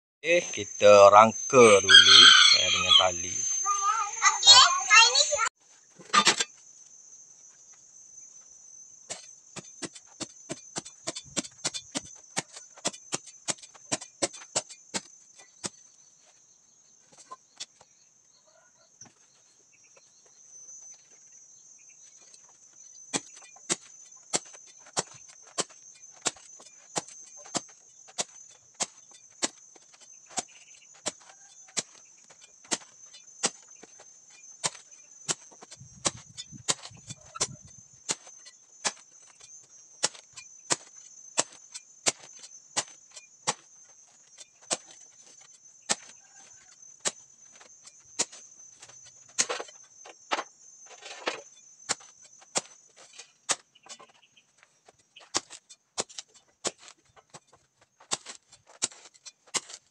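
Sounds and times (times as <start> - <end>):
high-pitched drone: 0.2 - 5.5
digging tool chopping turf: 9.1 - 15.8, 23.2 - 49.8, 51.8 - 54.2, 55.2 - 59.9.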